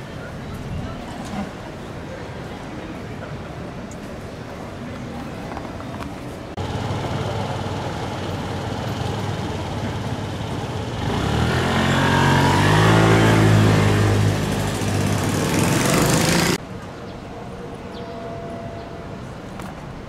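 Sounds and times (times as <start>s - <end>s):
city street traffic: 0.0s - 20.0s
vehicle engine passing close: 6.6s - 16.6s.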